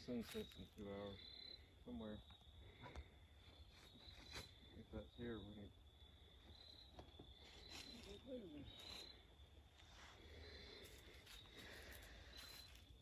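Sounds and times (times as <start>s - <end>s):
faint voice: 7.9s - 9.0s.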